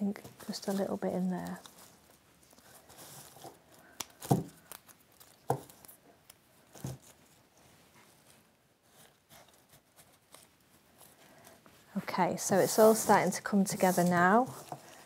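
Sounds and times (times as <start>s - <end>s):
leaves rustling: 0.4s - 5.9s, 10.0s - 15.0s.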